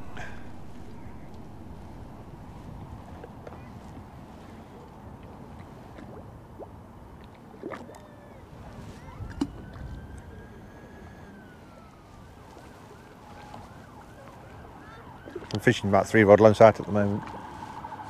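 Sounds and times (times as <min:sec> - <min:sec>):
far-off siren wailing: 0:00.0 - 0:04.4, 0:08.1 - 0:18.0
distant traffic: 0:00.0 - 0:18.0.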